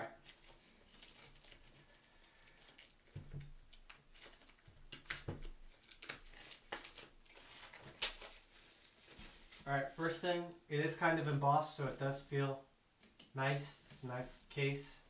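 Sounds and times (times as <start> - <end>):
plastic shrink wrap crinkling: 0.0 - 9.7.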